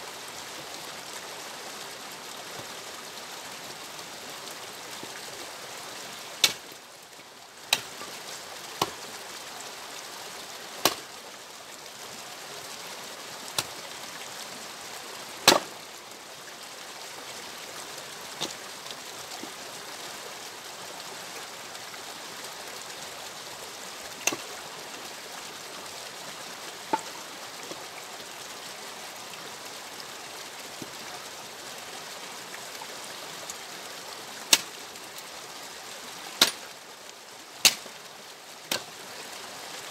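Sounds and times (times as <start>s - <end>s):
axe splitting logs: 6.4s - 6.6s, 7.7s - 8.0s, 10.8s - 11.0s, 15.4s - 15.7s, 24.2s - 24.4s, 36.4s - 36.7s, 37.6s - 37.9s, 38.7s - 38.9s.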